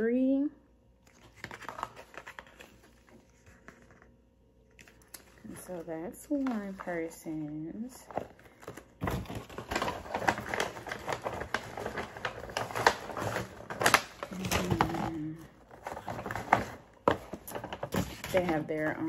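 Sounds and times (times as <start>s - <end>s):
paper boxes and bag rustling: 1.1s - 19.0s.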